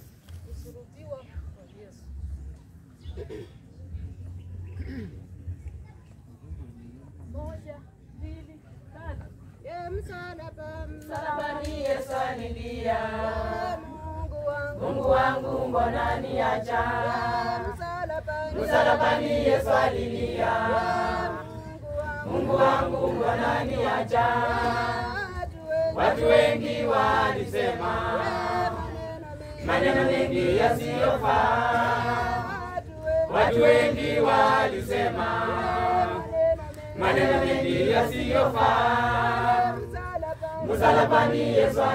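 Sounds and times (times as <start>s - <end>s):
choir singing a hymn: 10.4s - 41.9s.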